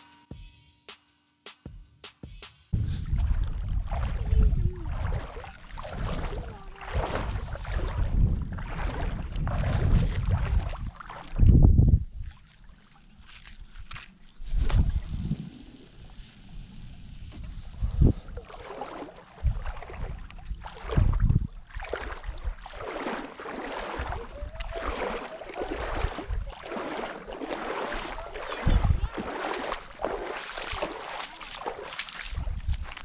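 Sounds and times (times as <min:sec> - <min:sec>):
low thumps on microphone: 0:02.8 - 0:04.1
lake water sloshing and splashing: 0:02.8 - 0:33.0.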